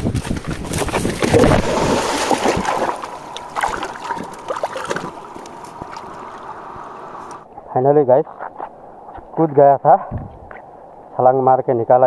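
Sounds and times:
water splashing and churning: 0:00.0 - 0:07.5.

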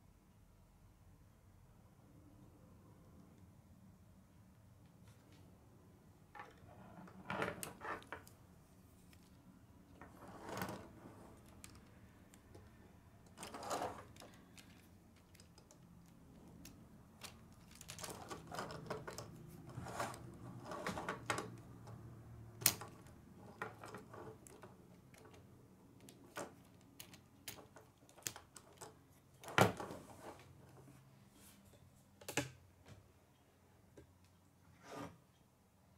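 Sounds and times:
plastic pieces clicking and rattling: 0:11.3 - 0:19.4, 0:22.6 - 0:29.0.

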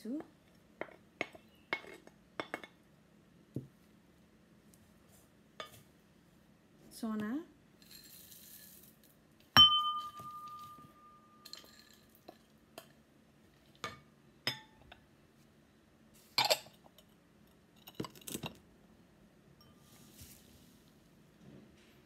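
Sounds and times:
dishes clinking on a table: 0:05.6 - 0:05.8, 0:09.6 - 0:13.0, 0:13.8 - 0:15.0, 0:16.4 - 0:17.1
glass bowl ringing: 0:09.6 - 0:11.9, 0:19.6 - 0:19.9.

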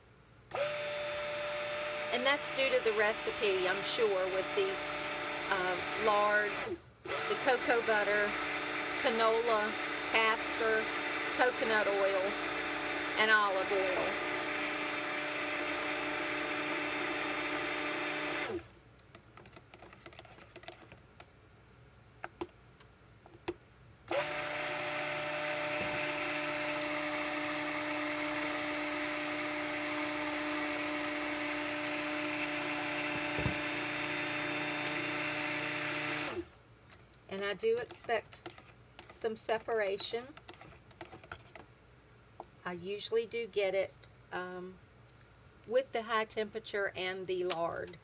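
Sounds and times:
stick blender running: 0:00.5 - 0:18.7, 0:24.1 - 0:36.5.

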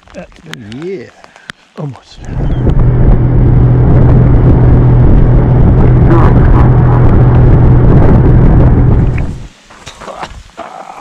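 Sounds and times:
small boat motor: 0:02.2 - 0:09.4.

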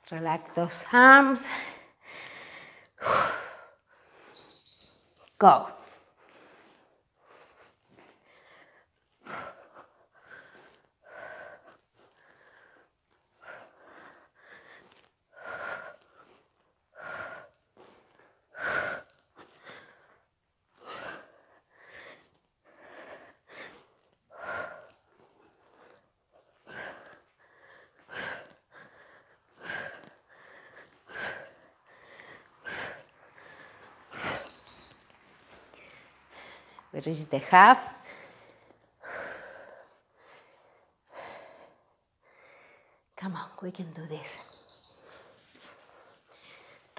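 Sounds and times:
woman breathing hard: 0:01.4 - 0:04.9, 0:05.8 - 0:37.0, 0:38.0 - 0:43.2, 0:44.4 - 0:46.9.

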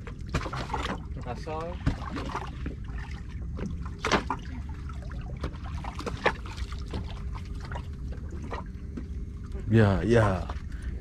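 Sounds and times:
water lapping against boat: 0:00.0 - 0:11.0
sharp water slaps: 0:04.0 - 0:04.4.

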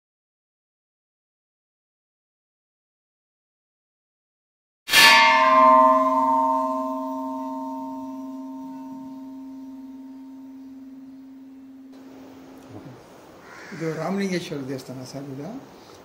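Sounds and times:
large metal bell ringing: 0:04.9 - 0:12.6.

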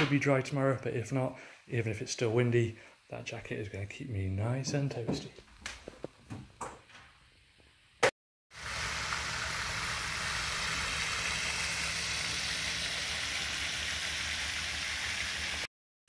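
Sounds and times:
fountain spray rushing hiss: 0:08.6 - 0:15.7.

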